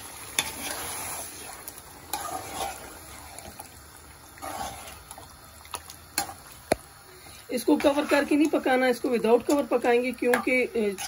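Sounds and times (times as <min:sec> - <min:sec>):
spoon stirring wet food: 0:07.5 - 0:11.0.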